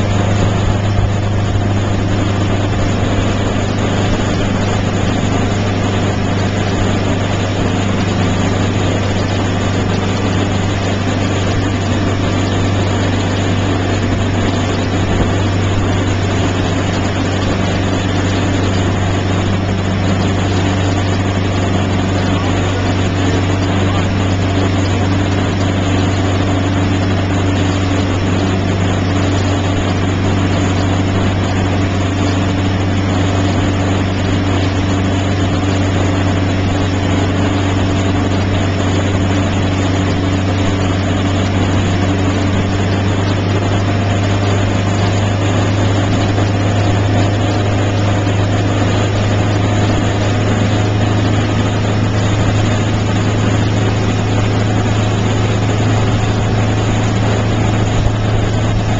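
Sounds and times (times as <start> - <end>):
motorboat engine droning: 0.0 - 58.9
water rushing: 0.0 - 58.9
wind: 0.0 - 58.9.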